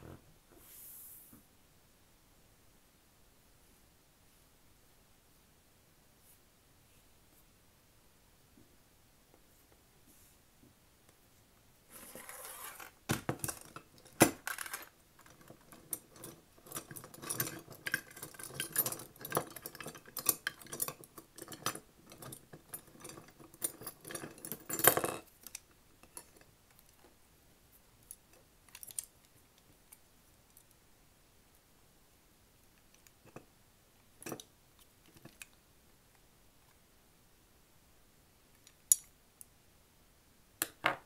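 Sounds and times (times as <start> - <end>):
metal crochet hooks clinking: 13.4 - 26.4.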